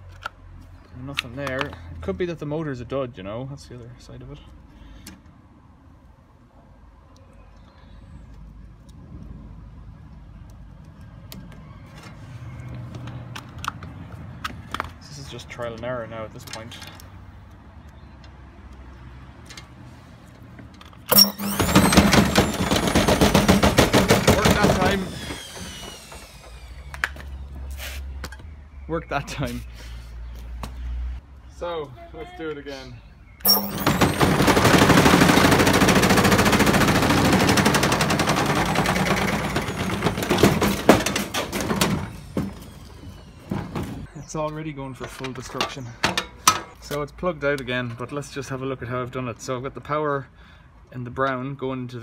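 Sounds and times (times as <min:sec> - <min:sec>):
loud rattling clatter: 0:21.1 - 0:26.7, 0:33.4 - 0:44.0
electric motor whine: 0:24.6 - 0:27.0.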